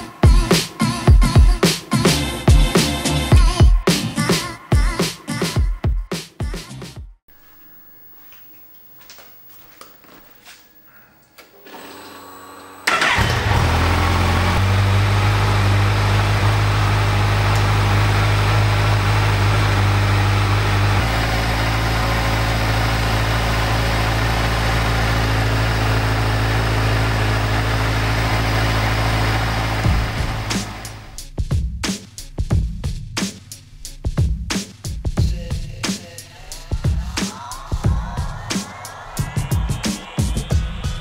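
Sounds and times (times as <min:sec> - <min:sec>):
motorcycle engine starting and idling: 0:11.6 - 0:31.2.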